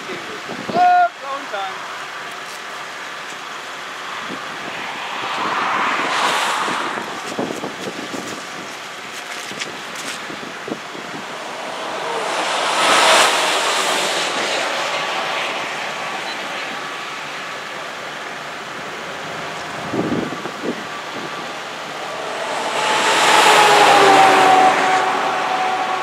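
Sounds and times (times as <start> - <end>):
wind rushing over microphone: 4.1 - 17.6, 19.3 - 26.0.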